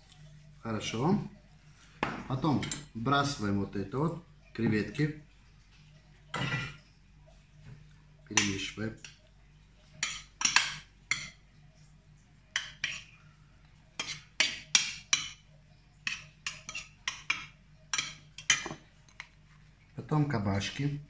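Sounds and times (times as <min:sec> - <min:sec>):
metal spoon scraping glass dish: 0:16.1 - 0:17.3.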